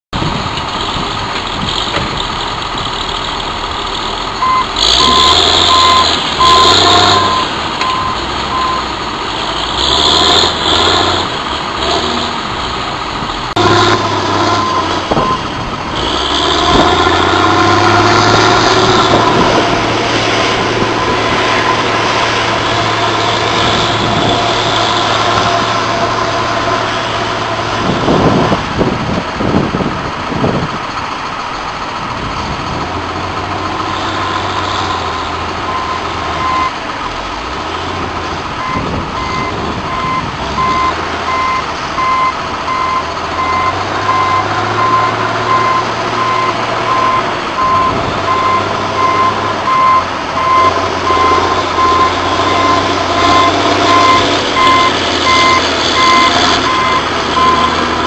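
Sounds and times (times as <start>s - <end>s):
diesel engine revving: 0.1s - 58.0s
travel alarm beeping: 4.4s - 8.9s, 38.6s - 57.8s.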